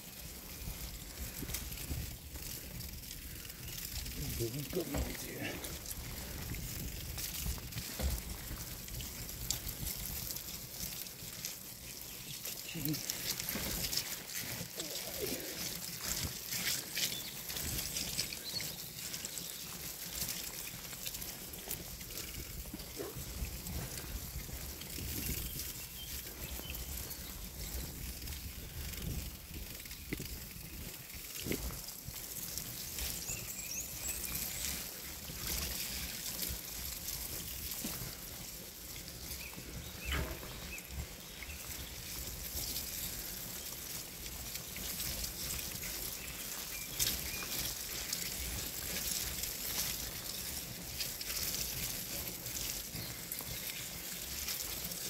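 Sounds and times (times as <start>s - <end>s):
bicycle tyres splashing through mud: 0.0s - 55.0s
wind rumble on microphone: 0.2s - 10.6s, 21.8s - 43.4s.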